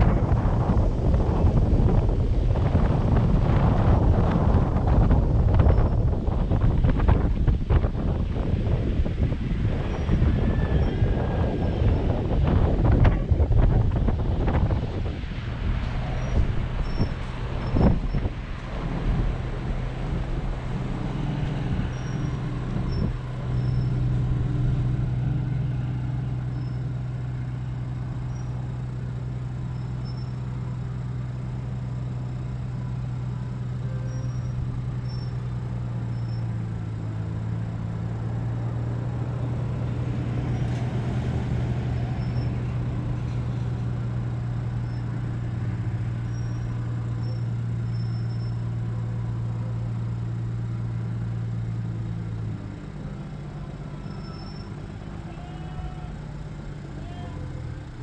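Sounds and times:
rushing noise: 0.0 - 29.1
engine running low hum: 0.0 - 58.0
faint high chirps: 54.0 - 54.8.

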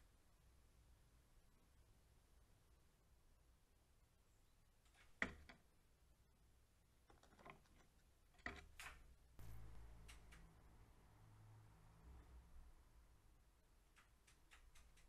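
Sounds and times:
bird pecking on wood: 5.0 - 5.6, 7.0 - 10.5, 13.8 - 15.0
low steady hum: 9.4 - 13.7.

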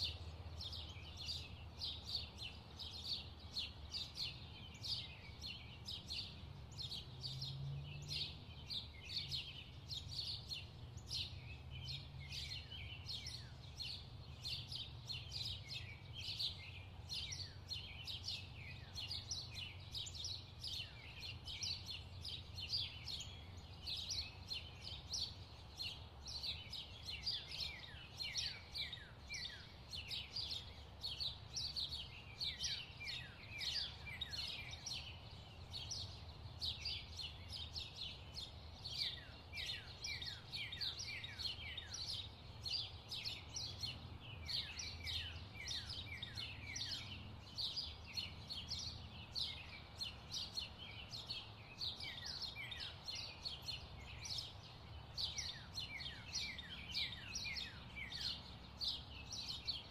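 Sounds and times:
birds chirping: 0.0 - 59.9.

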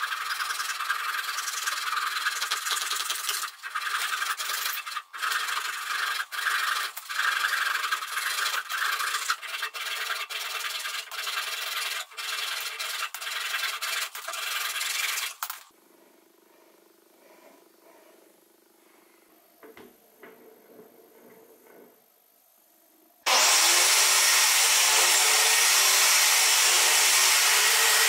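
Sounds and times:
handsaw sawing wood: 0.0 - 2.9, 3.5 - 15.2, 23.3 - 28.0.

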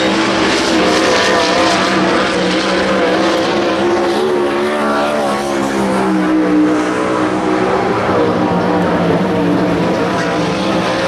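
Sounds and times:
race car engines revving: 0.0 - 11.0.

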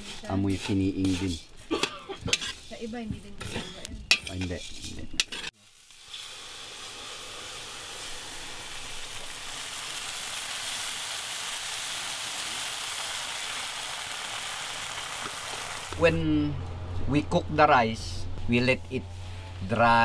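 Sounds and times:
water sizzling in hot wok: 5.4 - 16.0.

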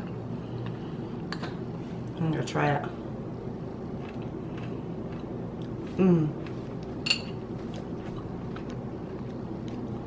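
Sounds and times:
low background hum: 0.0 - 10.0
person chewing: 3.8 - 10.0
person humming mmm: 5.9 - 6.5
spoon clink: 7.1 - 7.4.

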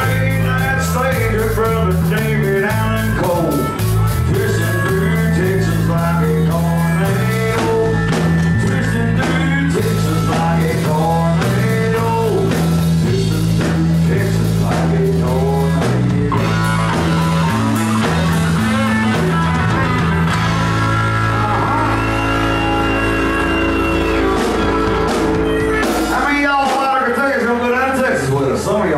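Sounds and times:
country band playing: 0.0 - 28.9.

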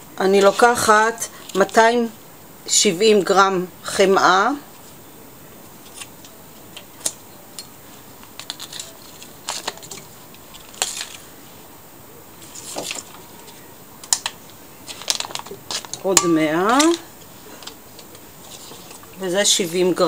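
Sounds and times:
paper wrapping rustling: 7.8 - 11.6, 12.3 - 19.2.

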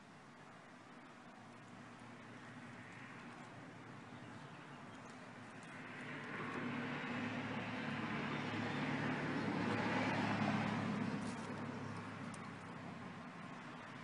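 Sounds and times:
vehicle passing: 2.0 - 14.0.

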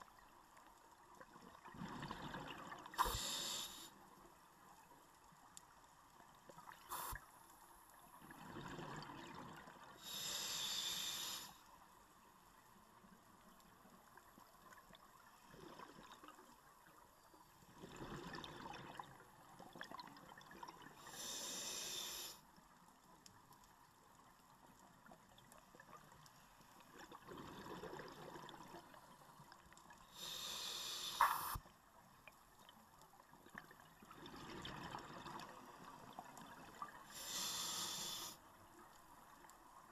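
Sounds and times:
regulator inhalation hiss: 3.0 - 3.9, 6.9 - 7.2, 10.0 - 11.6, 21.1 - 22.4, 30.1 - 31.6, 37.1 - 38.4.

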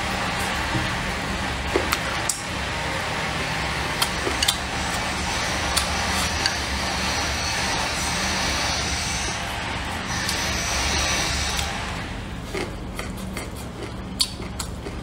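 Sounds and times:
chopsticks clicking against bowl: 4.0 - 4.6, 12.5 - 15.0.

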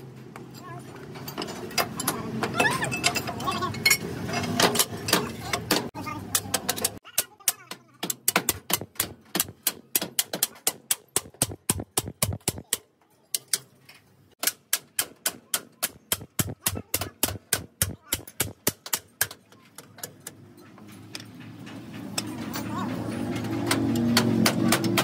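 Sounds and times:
hammer striking steel: 14.4 - 20.4, 23.4 - 25.0.

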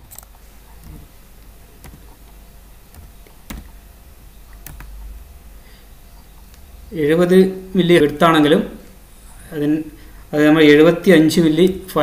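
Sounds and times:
steady low hum: 0.0 - 12.0
computer keys clicking: 1.8 - 2.2, 2.9 - 3.8, 4.5 - 5.0.

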